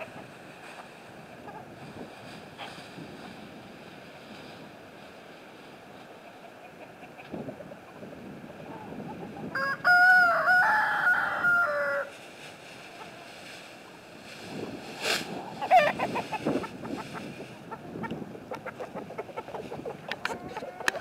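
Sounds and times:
hens clucking: 0:00.0 - 0:03.8, 0:05.9 - 0:21.0
rooster crowing: 0:09.5 - 0:12.1.

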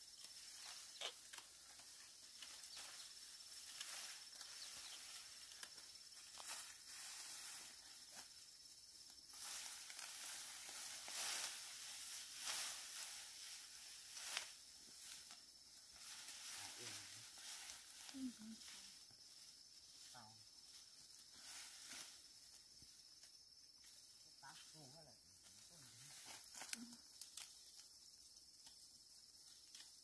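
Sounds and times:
dry rice stalks rustling: 0:00.1 - 0:22.6
stalks snapping: 0:26.6 - 0:27.6.

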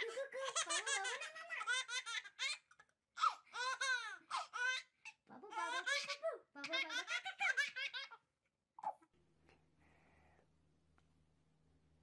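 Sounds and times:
baby laughing: 0:00.0 - 0:08.2.

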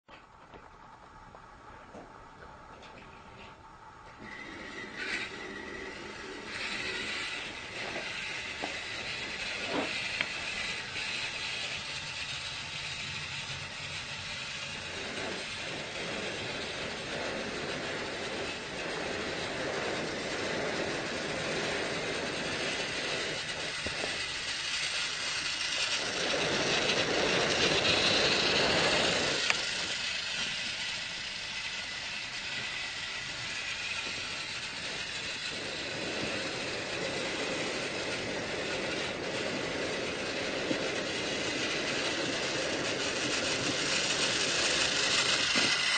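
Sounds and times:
train running: 0:00.1 - 0:45.9.

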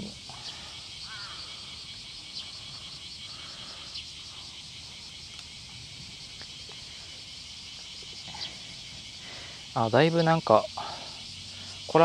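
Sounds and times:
insect chorus buzzing: 0:00.0 - 0:12.0.

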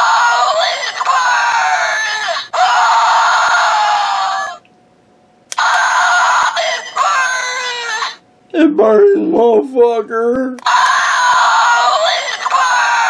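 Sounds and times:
toy speaker screaming: 0:00.0 - 0:04.6, 0:05.5 - 0:08.2, 0:10.6 - 0:13.0.

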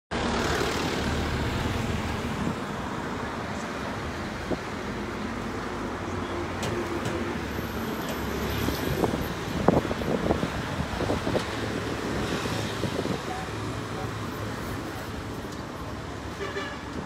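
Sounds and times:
road traffic rumble: 0:00.1 - 0:17.0.

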